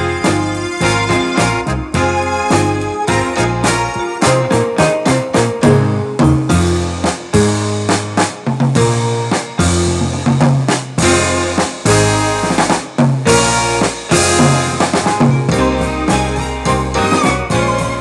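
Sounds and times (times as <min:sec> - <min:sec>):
drum kit: 0:00.0 - 0:18.0
held bass line: 0:00.0 - 0:18.0.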